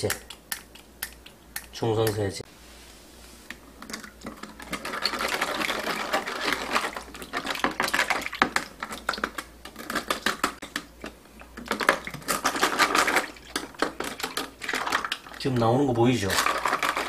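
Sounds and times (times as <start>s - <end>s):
plastic pipe fittings rattling: 3.8s - 15.5s, 16.2s - 17.0s
water sloshing and splashing: 3.9s - 15.5s.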